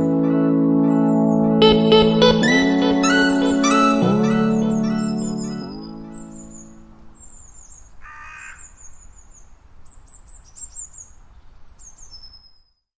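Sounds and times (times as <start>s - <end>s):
birds chirping: 1.1s - 12.8s.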